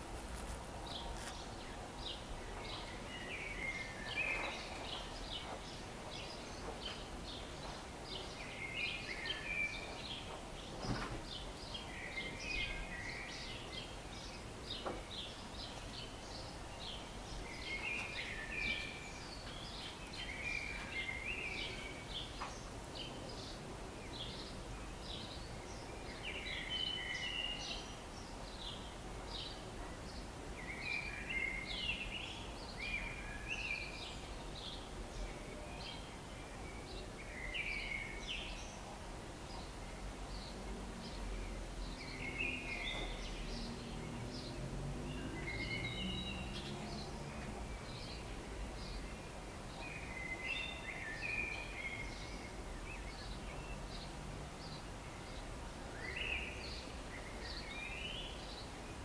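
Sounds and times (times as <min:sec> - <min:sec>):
outdoor background noise: 0:00.0 - 0:59.0
sparrows chirping: 0:00.0 - 0:59.0.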